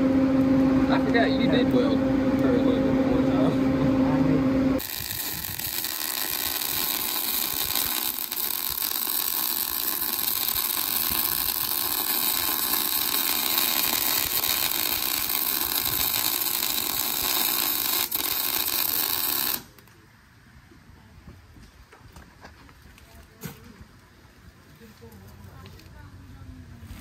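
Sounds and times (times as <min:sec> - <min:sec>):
welding arc crackling hiss: 0:04.8 - 0:19.9.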